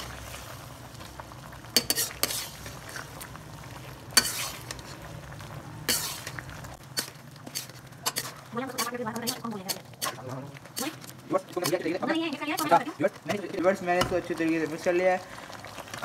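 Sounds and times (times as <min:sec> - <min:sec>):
metal spatula scraping pan: 0:01.8 - 0:03.1, 0:04.1 - 0:05.0, 0:05.9 - 0:11.9.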